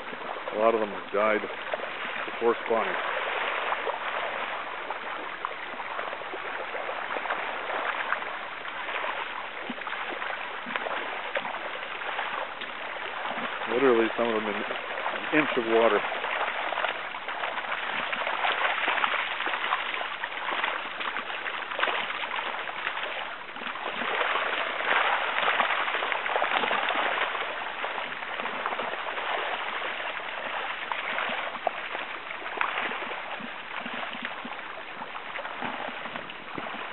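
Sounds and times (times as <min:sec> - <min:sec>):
creek water over gravel: 0:00.0 - 0:36.9.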